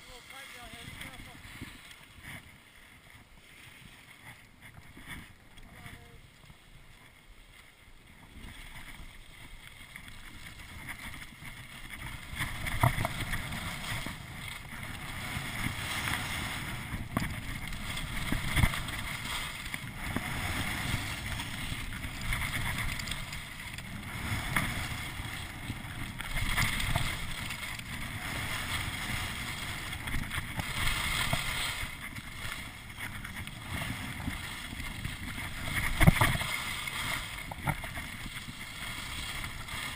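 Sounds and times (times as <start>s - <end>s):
skis scraping on snow: 0.0s - 39.9s
wind on microphone: 10.3s - 39.9s.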